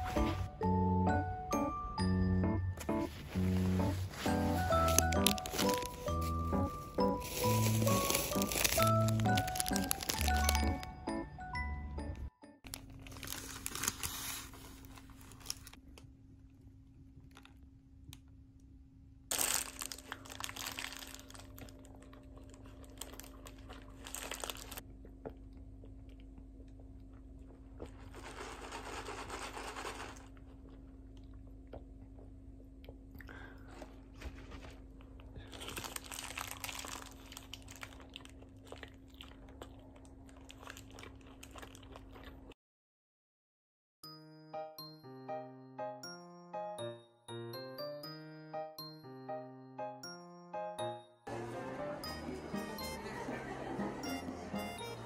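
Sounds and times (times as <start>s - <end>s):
paper wrapper crinkling: 3.1s - 10.9s, 12.6s - 15.8s, 19.3s - 24.8s, 28.0s - 30.3s, 35.4s - 39.0s
biting and chewing: 4.2s - 10.8s, 33.6s - 42.6s.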